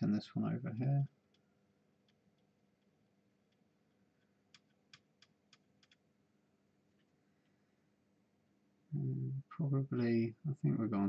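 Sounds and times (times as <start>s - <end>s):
faint sharp clicks: 4.2s - 6.0s.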